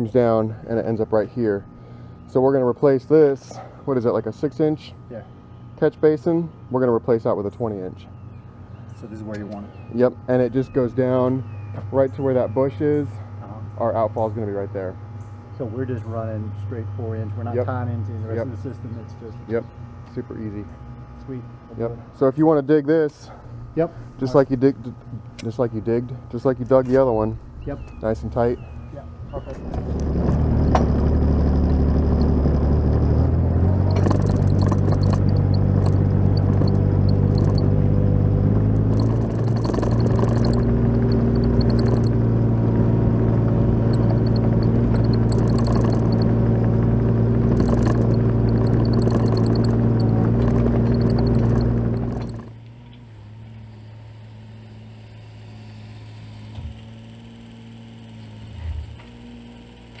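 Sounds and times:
diesel engine running: 23.4 - 52.6.

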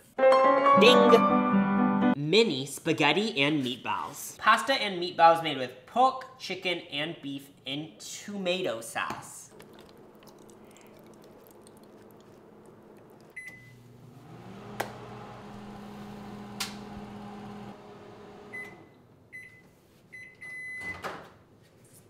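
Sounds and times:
microwave oven humming: 11.9 - 19.2
microwave keypad beep: 13.4 - 13.8, 18.5 - 21.0
microwave beeping: 13.4 - 21.1.

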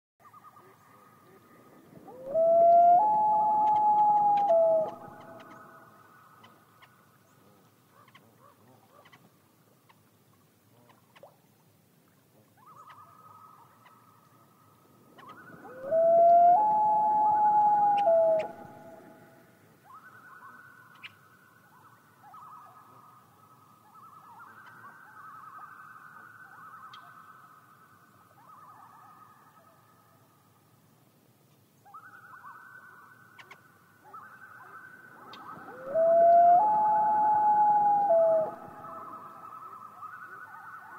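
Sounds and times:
loon tremolo calls: 0.2 - 6.9, 15.2 - 27.5, 31.9 - 40.9
loon wailing: 2.1 - 5.6, 15.6 - 19.2, 35.5 - 39.4.

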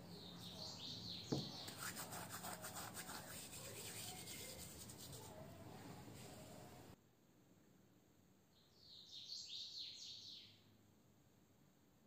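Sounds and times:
sharp knock: 1.3 - 1.6
dried leaves rubbed between palms: 1.6 - 5.4.

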